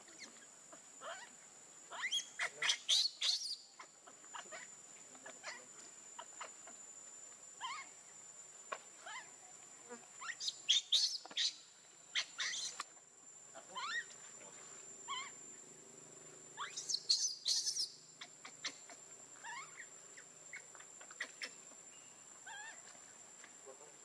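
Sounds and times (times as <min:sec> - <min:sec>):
high insect buzz: 0:00.0 - 0:24.0
baby monkey squealing: 0:01.9 - 0:04.7, 0:07.6 - 0:07.9, 0:10.2 - 0:12.8, 0:13.8 - 0:14.1, 0:15.1 - 0:15.4, 0:16.6 - 0:19.9, 0:20.5 - 0:21.5, 0:22.5 - 0:22.8.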